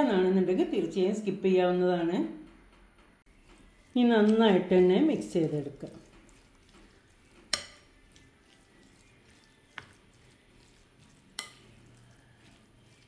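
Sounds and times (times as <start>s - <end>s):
spatula stirring mixture: 3.2s - 13.0s.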